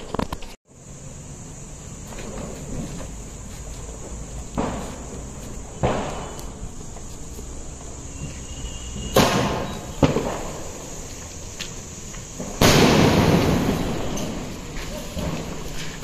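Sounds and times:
firework burst crackling: 0:01.9 - 0:16.0
firework launch bang: 0:04.5 - 0:06.6, 0:08.8 - 0:11.1, 0:12.3 - 0:15.8.

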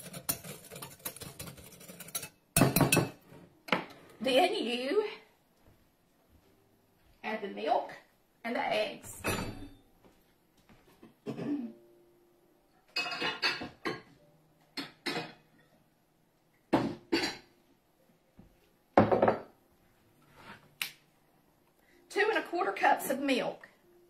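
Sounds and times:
dishes knocking and clinking on wood: 0:00.0 - 0:03.9, 0:13.0 - 0:14.2, 0:19.0 - 0:19.6.

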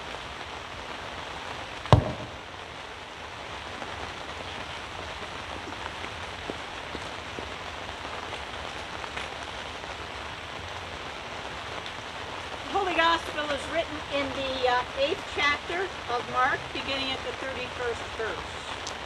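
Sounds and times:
steady rain falling: 0:00.0 - 0:19.0
loud thump: 0:02.0 - 0:02.5.

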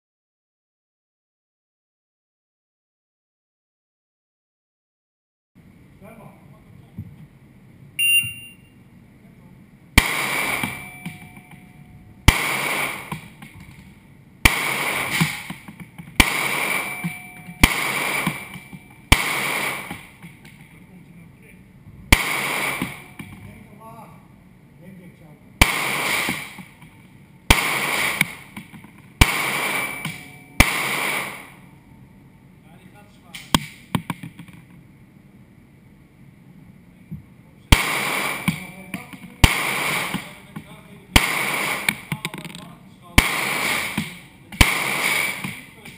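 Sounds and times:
handgun shots echoing indoors: 0:10.0 - 0:11.7, 0:16.2 - 0:19.9
echoing handgun shots: 0:10.0 - 0:13.3, 0:14.4 - 0:15.6, 0:16.2 - 0:20.2, 0:22.1 - 0:23.4, 0:25.6 - 0:26.7, 0:27.5 - 0:28.5, 0:29.2 - 0:31.7, 0:37.7 - 0:38.8, 0:39.4 - 0:40.4, 0:41.2 - 0:42.1, 0:43.2 - 0:45.7.

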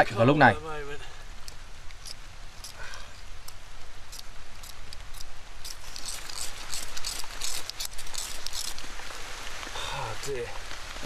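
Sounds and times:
tinder crackling: 0:00.0 - 0:11.0
fire steel scraping: 0:01.4 - 0:09.6.

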